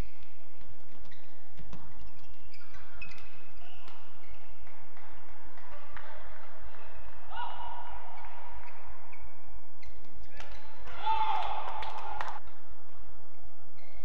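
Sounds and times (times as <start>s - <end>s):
shoes squeaking on court: 0.0s - 6.0s, 8.1s - 10.9s, 13.7s - 14.0s
racket hitting shuttlecock: 9.8s - 12.6s.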